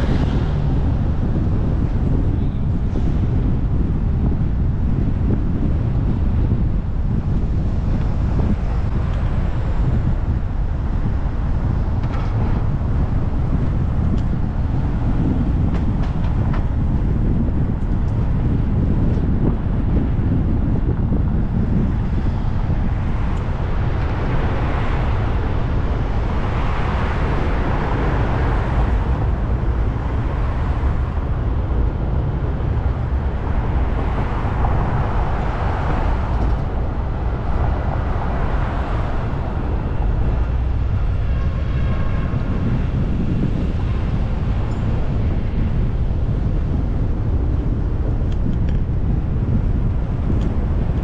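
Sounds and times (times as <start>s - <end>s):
road and wind noise: 0.0s - 51.0s.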